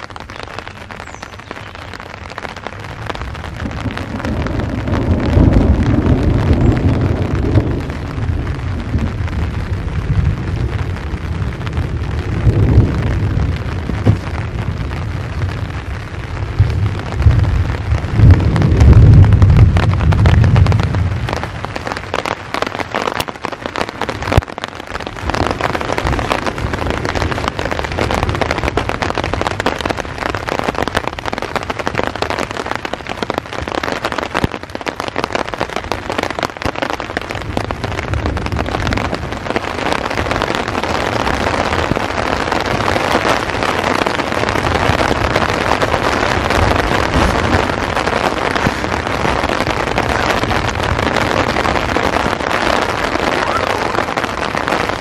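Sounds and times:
heavy rain falling: 0.0s - 55.0s
low rumbles of thunder: 2.9s - 21.8s, 37.0s - 55.0s.

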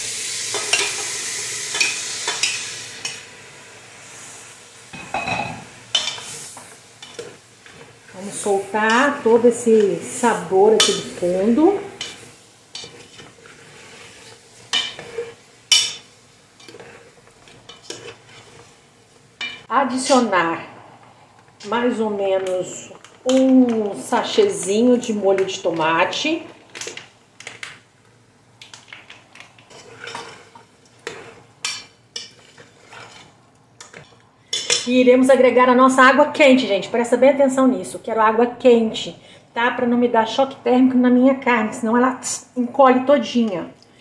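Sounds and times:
metal spoon scraping a pot: 12.0s - 16.0s, 16.6s - 18.7s, 29.7s - 34.9s.

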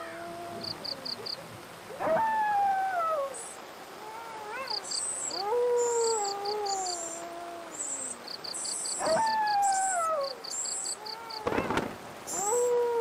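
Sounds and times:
insects chirping: 0.0s - 1.8s, 2.5s - 12.9s
rain hiss: 0.0s - 13.0s
dog howling: 4.1s - 7.8s, 9.0s - 10.3s.

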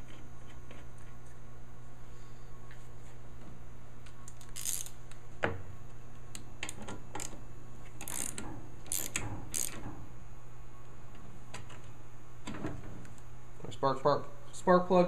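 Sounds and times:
ratchet wrench clicking: 4.5s - 4.9s, 8.0s - 9.8s.

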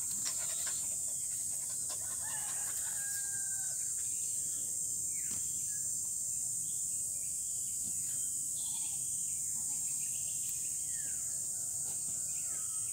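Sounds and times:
insect chorus drone: 0.0s - 12.9s
faint bird chirps: 3.8s - 11.4s.

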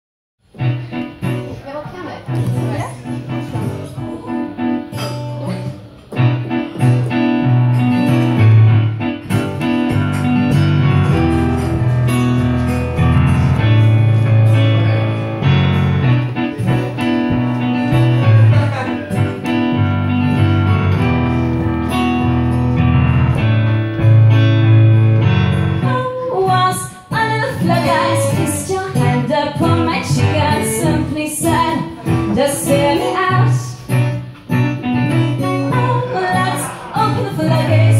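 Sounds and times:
acoustic guitar: 0.4s - 37.9s
digital piano chords: 0.4s - 37.9s
woman singing: 25.8s - 34.0s, 35.4s - 37.9s.

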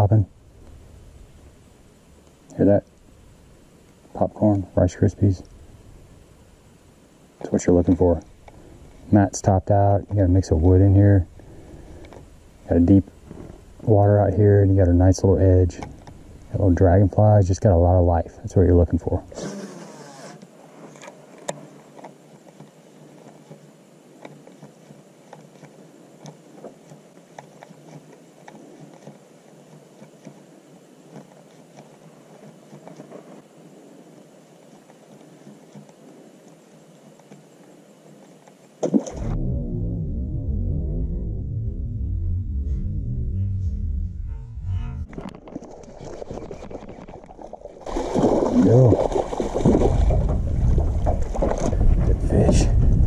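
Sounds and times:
faint steady hiss: 0.0s - 39.9s
wind noise: 39.1s - 47.2s, 48.1s - 53.0s
water splashing: 45.2s - 52.2s.

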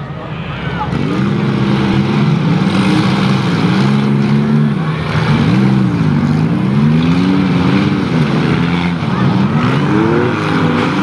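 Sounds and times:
car engines revving: 0.0s - 11.0s.

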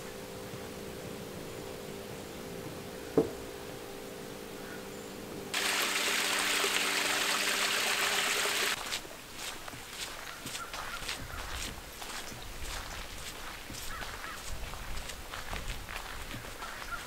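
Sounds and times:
faint steady hum: 0.0s - 17.0s
creek trickling over rocks: 5.5s - 17.0s.

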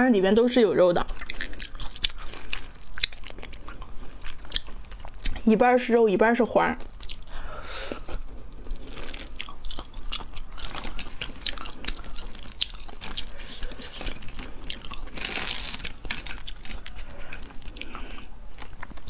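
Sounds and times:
close chewing and biting: 1.0s - 5.6s, 6.8s - 19.0s
crayfish shells cracking: 8.7s - 19.0s.

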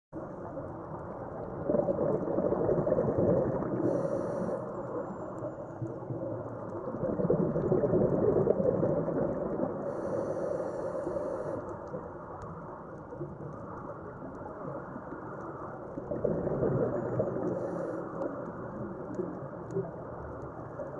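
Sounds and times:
bubbling exhalation underwater: 1.5s - 3.9s, 6.9s - 9.9s, 16.0s - 17.6s
regulator hissing inhalation: 9.9s - 11.6s.

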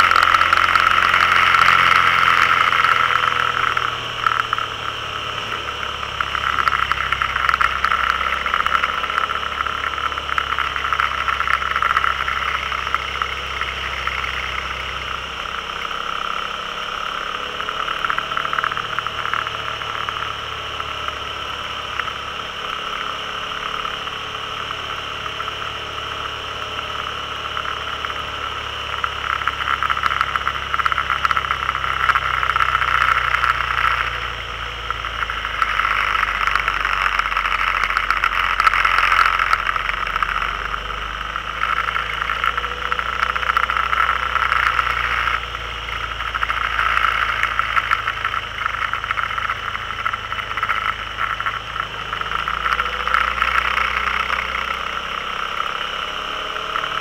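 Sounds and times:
vehicle engine running: 0.0s - 57.0s
wind and road noise: 0.0s - 57.0s.

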